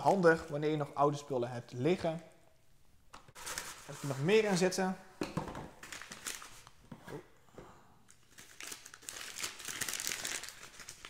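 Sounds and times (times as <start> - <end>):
packaging wrap crinkling: 8.1 - 11.0.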